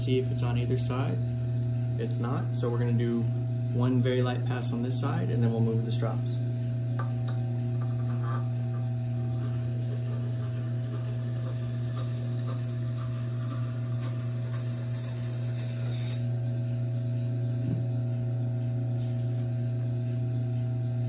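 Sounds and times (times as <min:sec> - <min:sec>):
grinder motor humming: 0:05.4 - 0:17.9
knife hissing on grindstone: 0:13.0 - 0:16.3.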